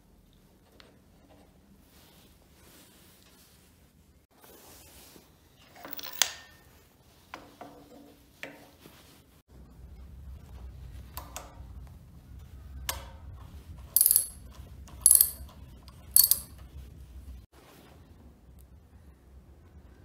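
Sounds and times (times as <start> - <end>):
ratchet wrench clicking: 14.0 - 14.4, 15.0 - 15.4, 16.2 - 16.5.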